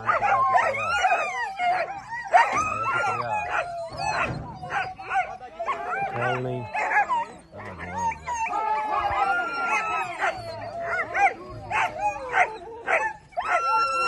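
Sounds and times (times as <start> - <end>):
dogs barking and yelping: 0.0 - 14.0
dogs howling: 0.0 - 14.0.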